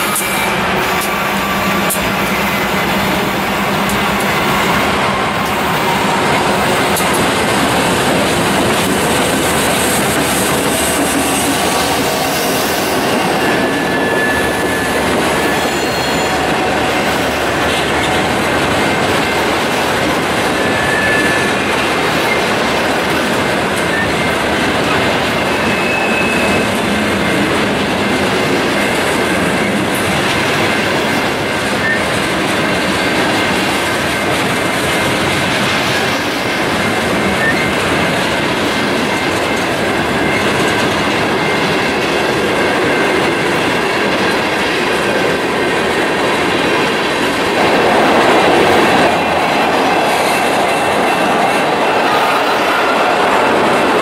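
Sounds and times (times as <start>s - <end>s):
freight train rumbling past: 0.0s - 54.0s
wheel squeals: 9.8s - 19.4s, 20.3s - 22.6s, 23.8s - 27.0s, 37.2s - 38.1s.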